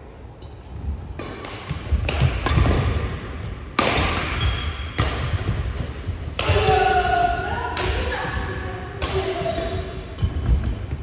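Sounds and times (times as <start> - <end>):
racket hitting shuttlecock: 1.2 - 6.9, 9.0 - 10.8
high shoe squeaks: 3.4 - 4.9.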